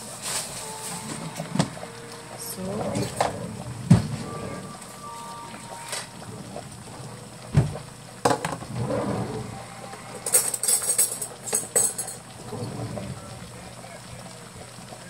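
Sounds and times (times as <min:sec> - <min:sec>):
metal utensils clattering: 0:10.3 - 0:12.9.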